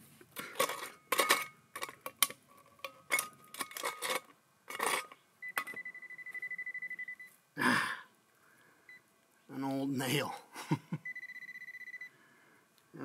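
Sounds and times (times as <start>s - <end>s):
rapidly pulsing high beep: 5.4s - 7.3s, 11.0s - 12.1s.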